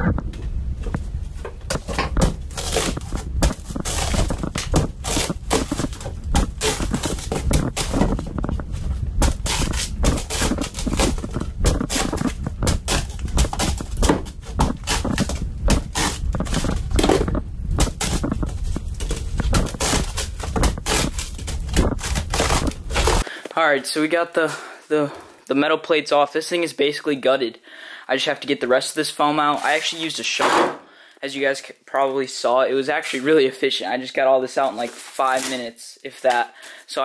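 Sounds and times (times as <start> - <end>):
foam crunching and crumbling: 1.3 - 23.2, 34.5 - 36.5.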